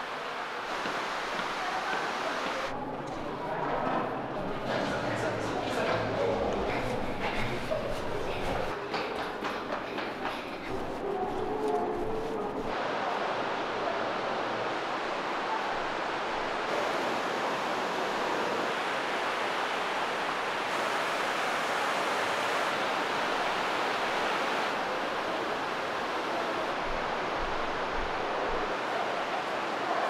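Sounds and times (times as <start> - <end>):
rushing river water: 0.0 - 2.8, 9.6 - 30.0.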